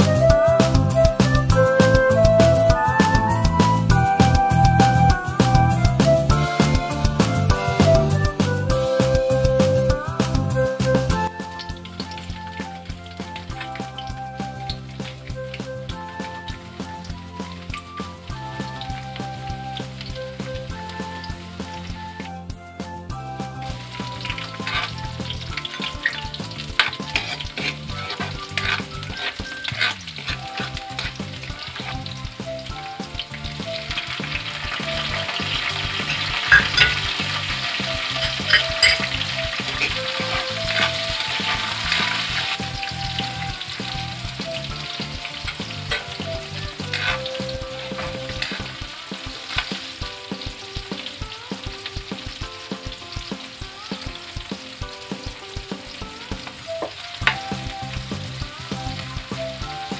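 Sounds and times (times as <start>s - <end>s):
vegetables sizzling in hot oil: 5.3s - 22.4s, 23.2s - 59.9s
utensil scraping a wok: 24.2s - 32.1s, 34.2s - 42.7s, 44.8s - 49.9s.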